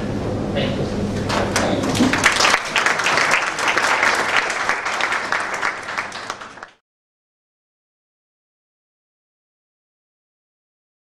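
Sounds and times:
audience applauding: 1.3s - 6.8s.

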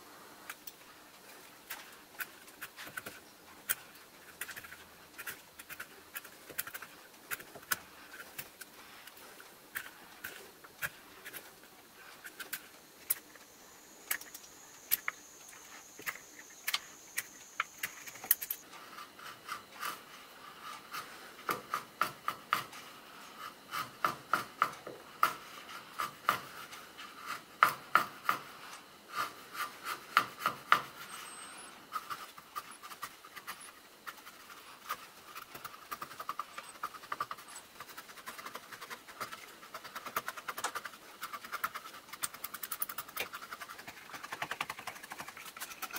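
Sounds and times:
knife scraping wood: 29.1s - 45.9s.

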